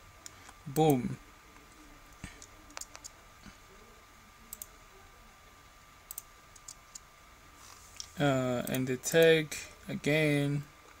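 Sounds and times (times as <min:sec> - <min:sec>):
computer mouse clicks: 0:02.4 - 0:03.2, 0:06.1 - 0:07.1.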